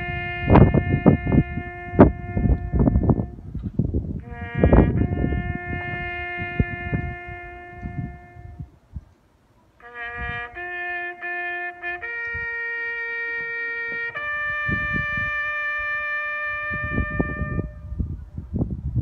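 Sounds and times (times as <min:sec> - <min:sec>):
bugle call: 0:00.0 - 0:03.4, 0:04.2 - 0:08.7, 0:09.8 - 0:18.1.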